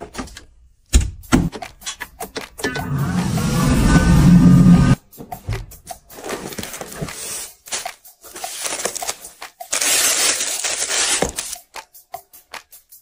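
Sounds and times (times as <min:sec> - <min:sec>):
paper packaging rustling: 0:06.1 - 0:11.6
plastic wrap crinkling: 0:07.7 - 0:11.6.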